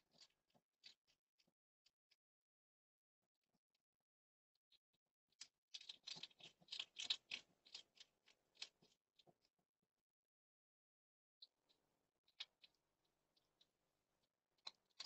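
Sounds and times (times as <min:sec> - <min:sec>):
hedgehog eating crisp crunches: 0:05.7 - 0:08.8.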